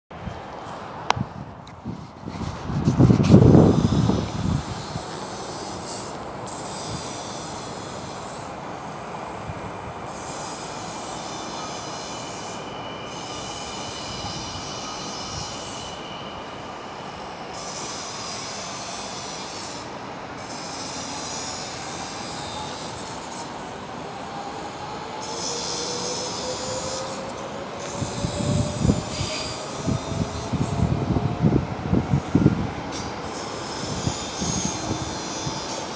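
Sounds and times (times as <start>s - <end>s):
train rolling rumble: 0.1s - 35.9s
wheel squeal: 10.1s - 23.6s, 24.2s - 30.8s, 33.0s - 35.9s.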